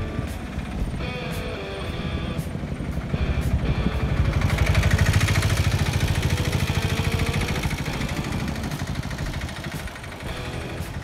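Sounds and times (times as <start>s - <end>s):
engine running pulsing: 0.0s - 11.0s.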